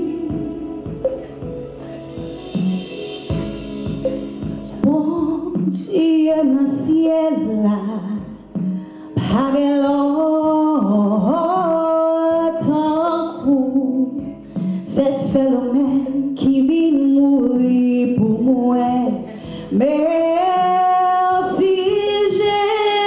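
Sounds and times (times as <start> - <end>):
woman singing a hymn: 0.0 - 1.3, 4.8 - 23.0
backing accompaniment: 0.0 - 6.3.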